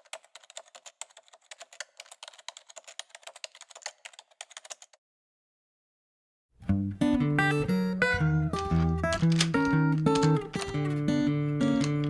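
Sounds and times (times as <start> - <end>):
fast keyboard typing: 0.0 - 5.0, 8.6 - 10.9.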